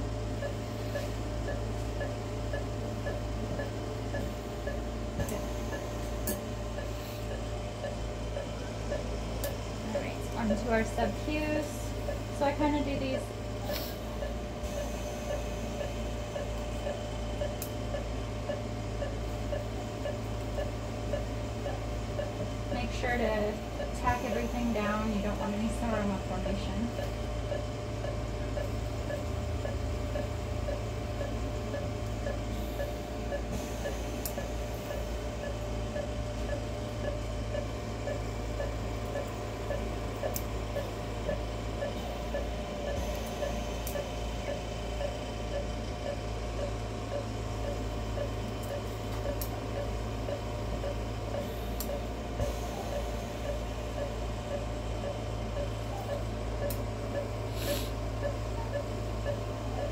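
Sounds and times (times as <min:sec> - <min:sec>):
operating room hum: 0:00.0 - 0:59.9
patient monitor beeping: 0:00.0 - 0:59.9
surgical instruments clicking: 0:45.0 - 0:52.0.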